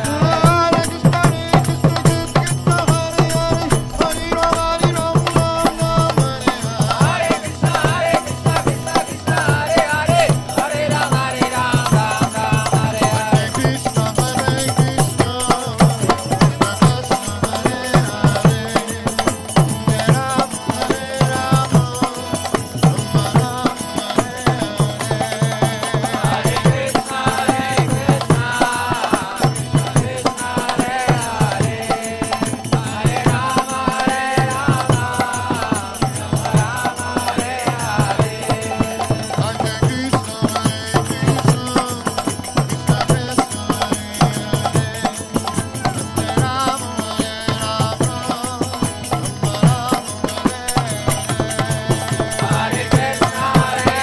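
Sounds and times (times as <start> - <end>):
hand drums beating: 0.0 - 54.0
group chanting: 3.2 - 11.8, 26.1 - 35.9, 52.5 - 54.0.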